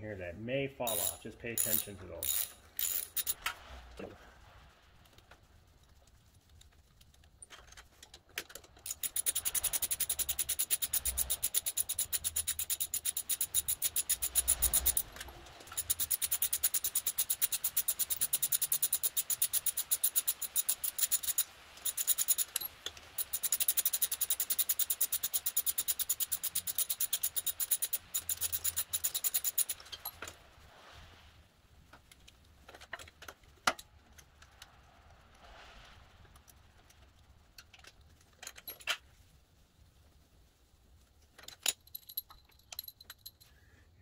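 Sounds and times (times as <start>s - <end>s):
socket ratchet clicking: 0.9s - 3.4s, 8.8s - 30.0s.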